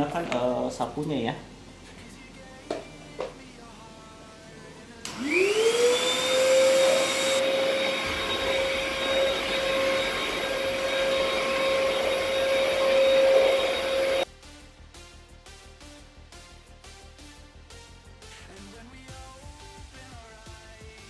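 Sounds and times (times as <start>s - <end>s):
vacuum cleaner motor whine: 5.0s - 14.3s
vacuum nozzle on carpet: 5.0s - 14.3s.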